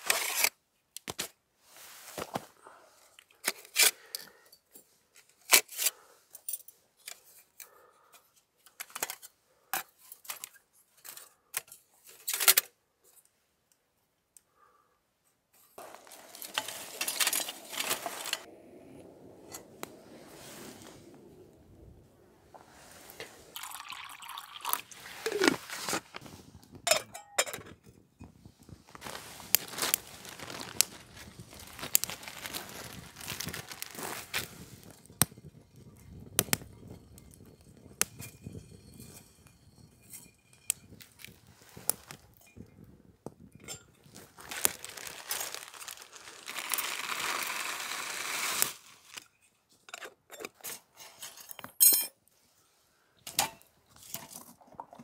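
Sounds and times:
fire crackling: 15.8s - 26.8s, 28.5s - 49.2s
steady rushing sound: 18.0s - 23.5s
metal pot clinking: 26.9s - 27.6s.

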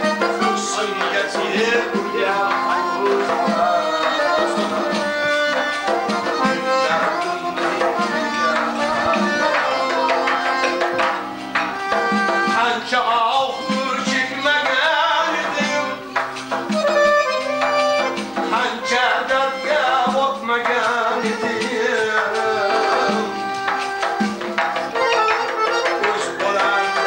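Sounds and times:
hand drum striking: 0.0s - 27.0s
sustained melodic instrument lines: 0.0s - 27.0s.

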